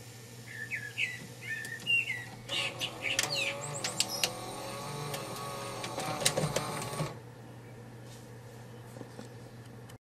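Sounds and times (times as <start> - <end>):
bird chirps: 0.4 - 4.3
cassette mechanism whirring and clicking: 1.5 - 7.2.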